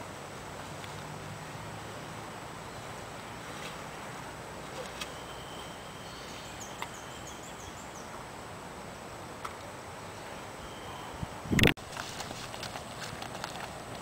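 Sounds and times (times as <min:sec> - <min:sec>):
small bird chirping: 0:05.0 - 0:08.2.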